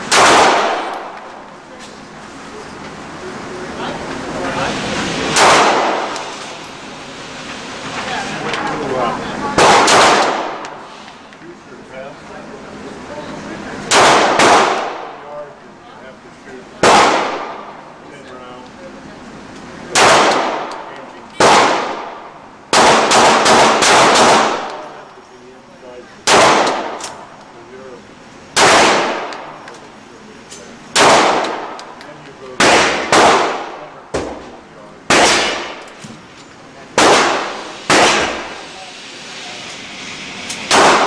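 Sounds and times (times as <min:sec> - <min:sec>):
pistol shots echoing indoors: 0:00.0 - 0:01.3, 0:05.3 - 0:06.3, 0:09.6 - 0:10.7, 0:13.9 - 0:15.1, 0:16.8 - 0:17.7, 0:19.9 - 0:20.8, 0:21.4 - 0:24.8, 0:26.2 - 0:27.2, 0:28.6 - 0:29.6, 0:30.9 - 0:31.8, 0:32.6 - 0:34.4, 0:35.1 - 0:35.9, 0:37.0 - 0:38.5, 0:40.7 - 0:41.0.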